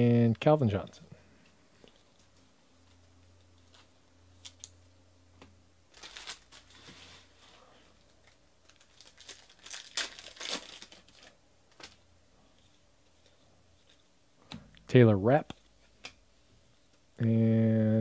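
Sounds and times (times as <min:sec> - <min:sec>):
foil wrapper crinkling: 0:05.9 - 0:07.3, 0:08.2 - 0:12.0.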